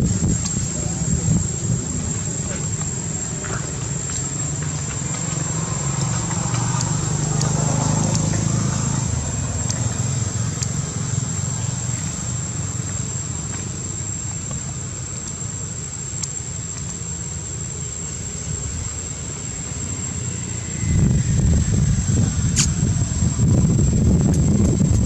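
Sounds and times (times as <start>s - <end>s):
low rumble and hiss: 0.0s - 7.6s, 8.3s - 25.0s.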